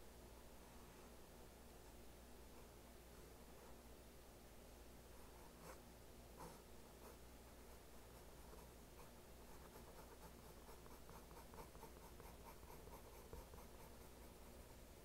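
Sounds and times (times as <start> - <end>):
low steady hum: 0.0 - 15.0
pencil strokes on paper: 5.2 - 14.9.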